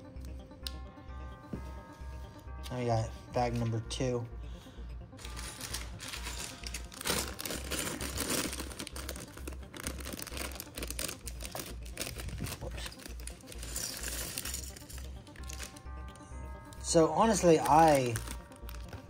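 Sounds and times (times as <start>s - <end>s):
plastic bag crinkling: 5.2s - 15.8s, 17.6s - 19.0s.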